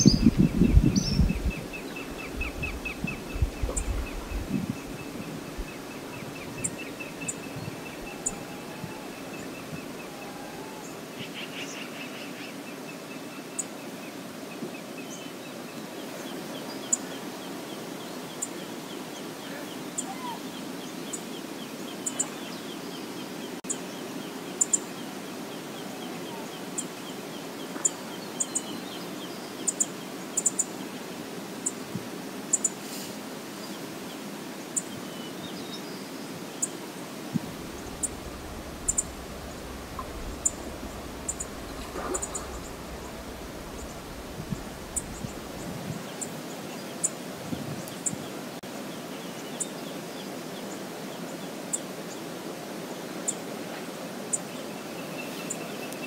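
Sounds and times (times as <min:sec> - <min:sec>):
river water rushing: 0:01.6 - 0:11.3, 0:33.1 - 0:55.9
bird chirps: 0:37.6 - 0:45.7.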